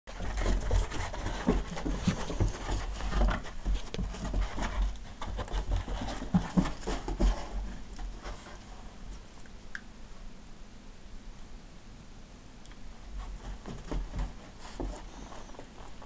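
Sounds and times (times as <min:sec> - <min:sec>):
dog scuffling on carpet: 0:00.1 - 0:09.3, 0:13.1 - 0:16.0
low thumps of paws: 0:00.1 - 0:09.3, 0:13.1 - 0:16.0
dog panting: 0:13.2 - 0:16.0.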